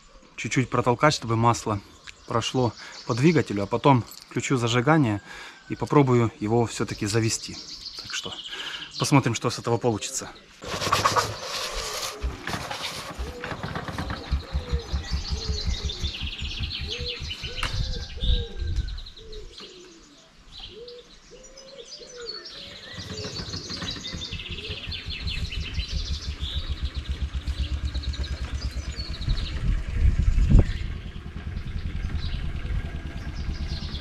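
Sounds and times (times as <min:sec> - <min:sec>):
birds chirping and trilling: 0:00.0 - 0:34.0
low pulsing of engine turned over: 0:10.6 - 0:19.3, 0:22.6 - 0:34.0.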